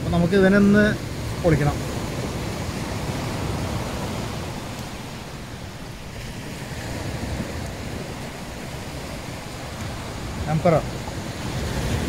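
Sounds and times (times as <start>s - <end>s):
sea waves on shore: 0.0s - 12.0s
wind buffeting microphone: 0.0s - 12.0s.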